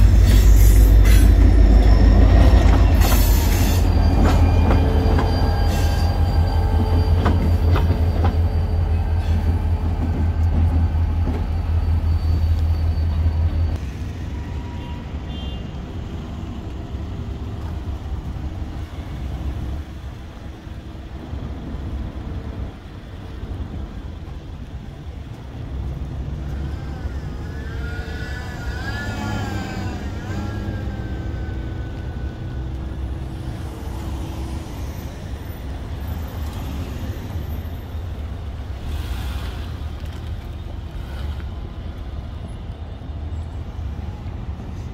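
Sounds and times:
wavering high squeal: 0:00.0 - 0:13.8, 0:26.7 - 0:32.6
diesel locomotives rumbling: 0:00.0 - 0:44.9.

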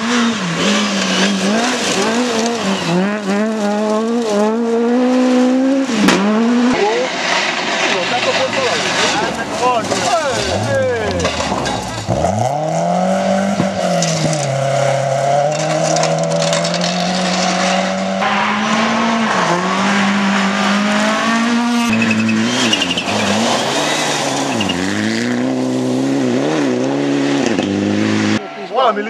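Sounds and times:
rally car engines revving: 0:00.0 - 0:29.0.

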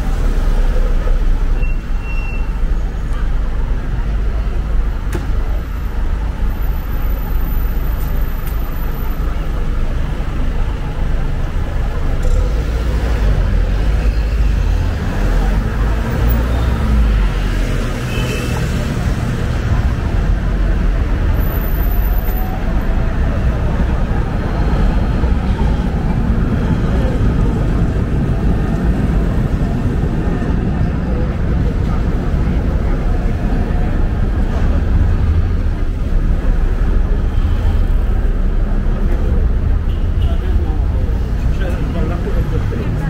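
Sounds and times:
cars passing: 0:02.5 - 0:43.0
tram passing: 0:18.6 - 0:43.0.

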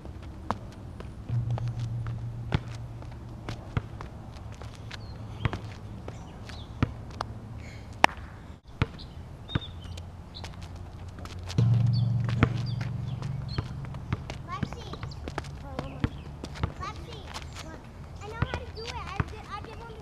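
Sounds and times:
low steady hum: 0:00.0 - 0:06.0, 0:10.0 - 0:16.5.

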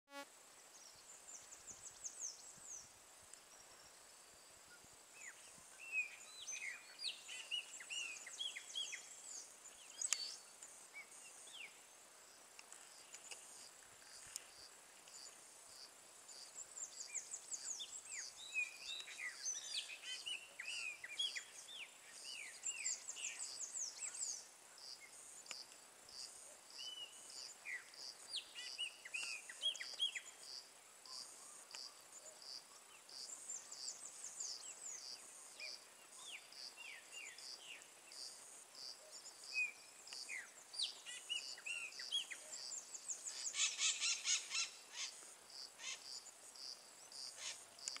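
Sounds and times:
insect chirping: 0:00.1 - 0:48.0
blackbirds calling: 0:39.1 - 0:46.3.

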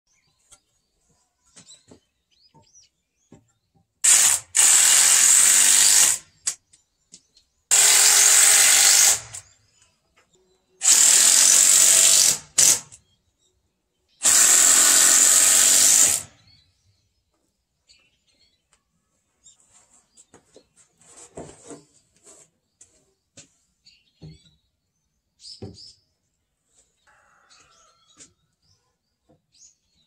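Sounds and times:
cordless drill driving screws into wood: 0:04.0 - 0:06.6, 0:07.7 - 0:09.6, 0:10.8 - 0:13.0, 0:14.2 - 0:16.4.

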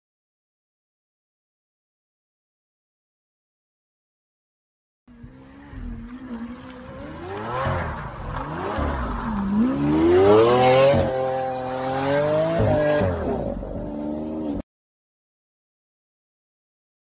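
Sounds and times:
car engine revving hard: 0:05.1 - 0:14.6.

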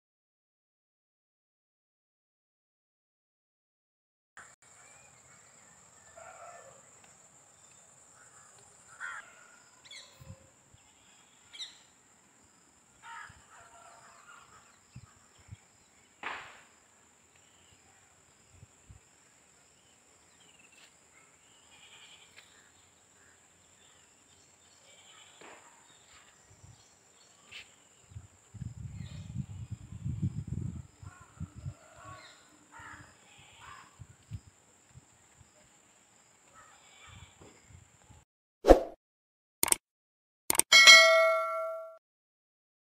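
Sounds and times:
thin high-pitched tone: 0:40.5 - 0:42.0.

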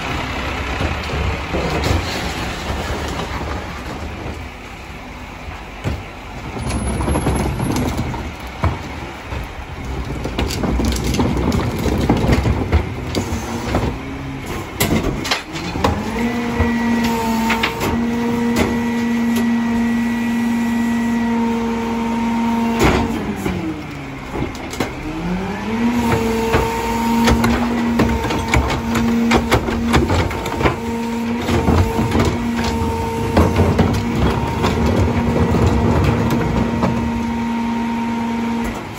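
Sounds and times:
trash banging into truck hopper: 0:00.0 - 0:04.5, 0:05.8 - 0:38.9
truck engine revving: 0:06.4 - 0:38.9.

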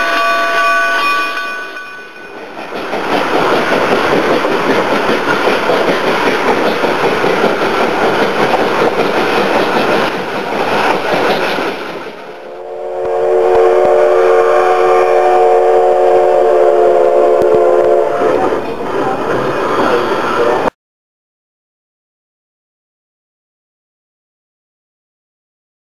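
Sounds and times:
train coach and wheel rattle: 0:00.0 - 0:12.5, 0:17.3 - 0:20.7
steam locomotive whistle: 0:12.5 - 0:18.6.

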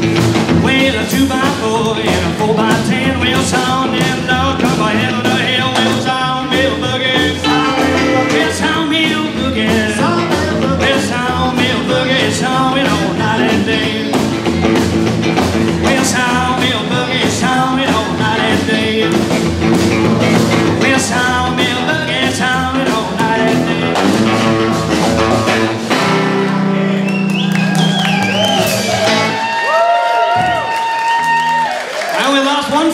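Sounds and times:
live rockabilly band playing: 0:00.0 - 0:32.9.

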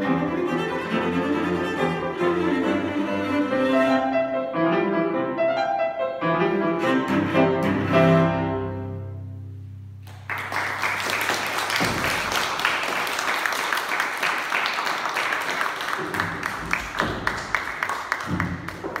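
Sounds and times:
audience applauding: 0:10.0 - 0:19.0.

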